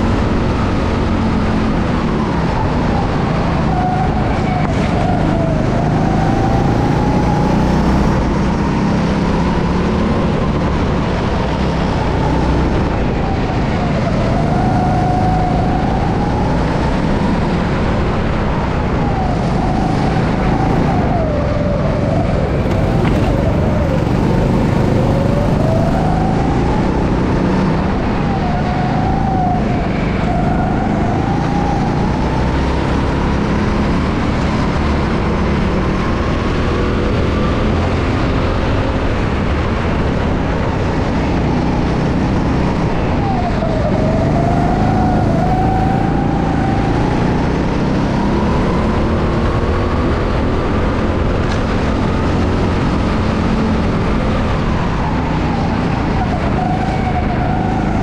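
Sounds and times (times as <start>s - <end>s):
go-kart engine: 0.0s - 58.0s.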